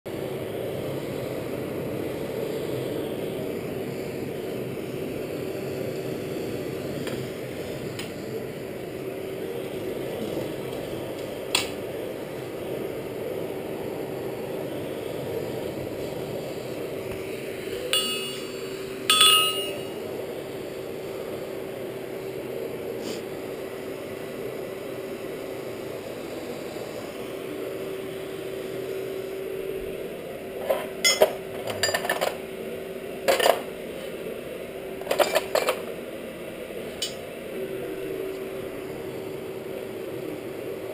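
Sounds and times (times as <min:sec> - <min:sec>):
air blower humming: 0:00.1 - 0:31.5
steel bars clanking: 0:18.0 - 0:18.5, 0:19.1 - 0:19.9
tongs clinking: 0:19.1 - 0:19.9.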